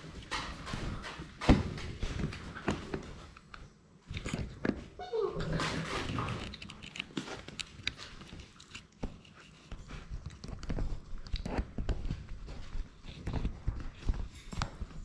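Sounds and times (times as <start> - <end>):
puppies chewing: 5.6 - 15.0.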